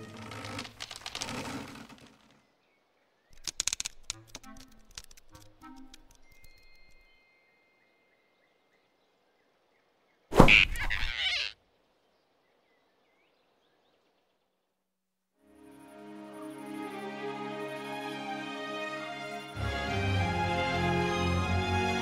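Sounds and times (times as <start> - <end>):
sharp knock with swishing noise: 10.3 - 10.8.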